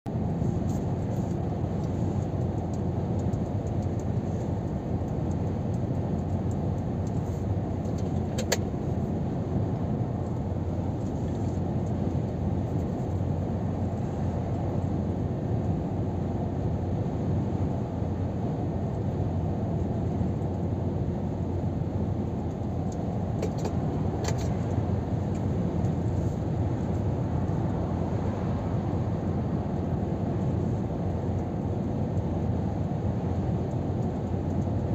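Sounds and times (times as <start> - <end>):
truck engine drone: 0.1 - 34.9
tyre and road rumble: 18.9 - 34.9.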